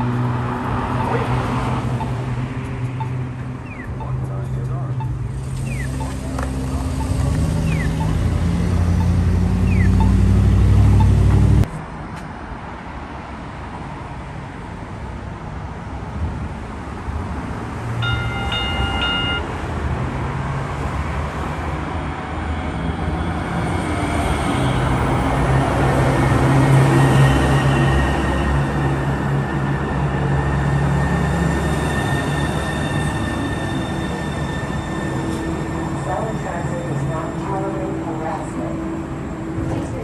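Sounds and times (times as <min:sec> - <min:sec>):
light rail train running noise: 0:00.0 - 0:40.0
road traffic: 0:00.0 - 0:40.0
vehicle engine running: 0:04.2 - 0:11.7
light rail train horn: 0:18.0 - 0:19.5.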